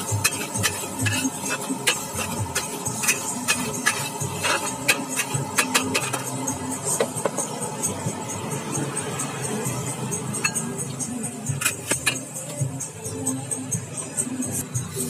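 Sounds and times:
metal spatula scraping wok: 0.0 - 6.9, 10.2 - 12.6
background music: 0.0 - 15.0.

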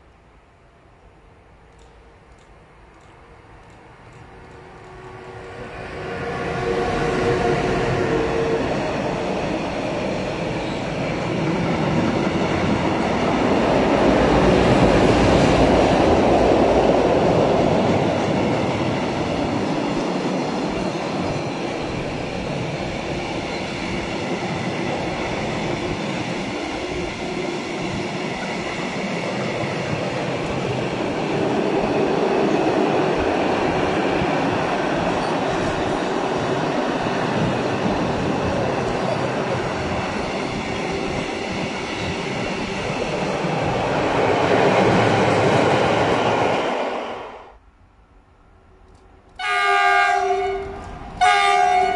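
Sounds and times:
electric locomotive whine: 1.0 - 47.6
steel wheels rumbling on rail: 1.8 - 47.6.

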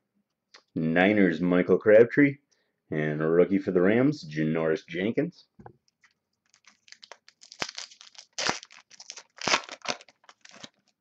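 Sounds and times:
foil wrapper tearing and crinkling: 6.4 - 11.0.

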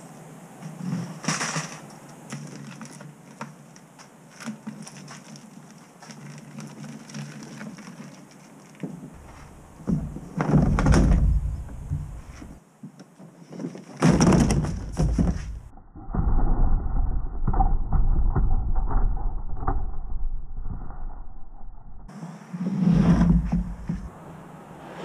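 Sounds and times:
boat hull thumping and scraping: 9.1 - 12.6, 13.9 - 15.7, 22.9 - 24.1
muffled rumble: 9.2 - 12.6, 22.8 - 25.0.

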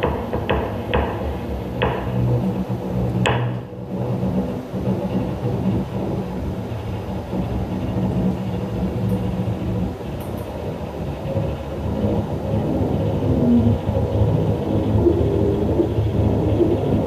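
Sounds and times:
cello improvising: 10.7 - 17.0.

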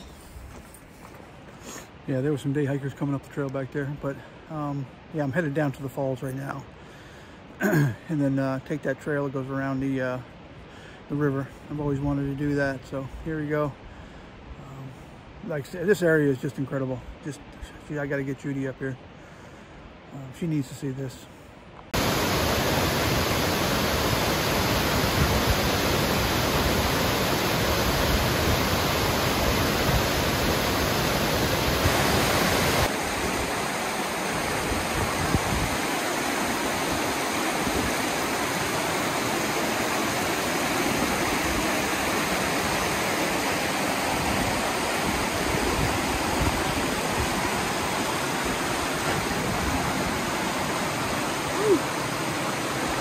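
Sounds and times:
creek rapids rushing: 21.9 - 53.0
waterfall rushing: 21.9 - 53.0.

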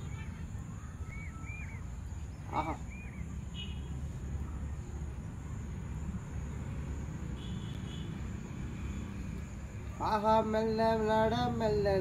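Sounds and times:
faint high chirps: 0.0 - 5.1.

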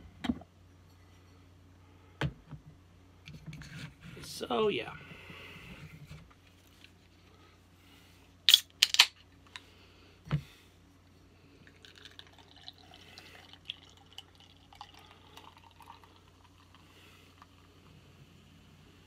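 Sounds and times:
beer can cracking open: 8.5 - 9.1
beer pouring and fizzing: 11.6 - 17.9.

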